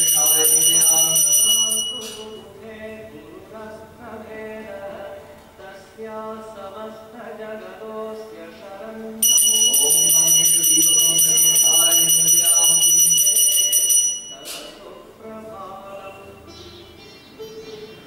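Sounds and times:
hand bell ringing rapidly: 0.0 - 2.4, 9.2 - 14.4
people singing: 1.8 - 12.4, 13.4 - 18.0.

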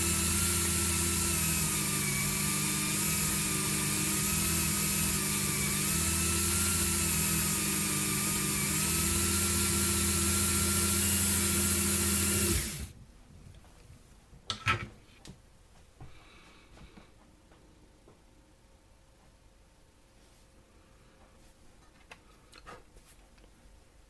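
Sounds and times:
rotary tool whining: 0.0 - 12.9.

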